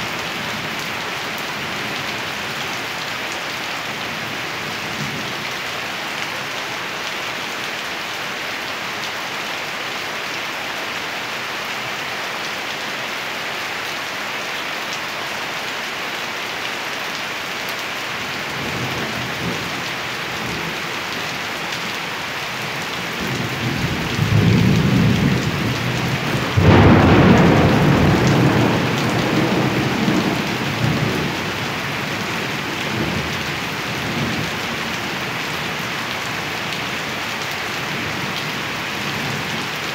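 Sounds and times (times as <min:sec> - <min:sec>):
steady rain falling: 0:00.0 - 0:39.9
thunder rumbling: 0:23.8 - 0:31.4
sharp thunderclap: 0:26.6 - 0:30.3.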